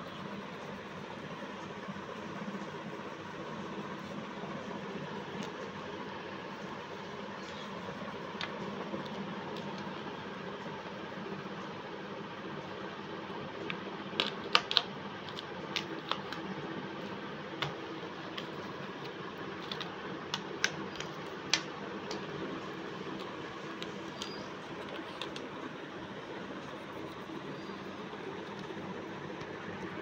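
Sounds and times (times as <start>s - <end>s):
pastel sticks clicking in plastic tray: 13.6s - 16.6s, 17.5s - 22.4s, 23.1s - 25.5s.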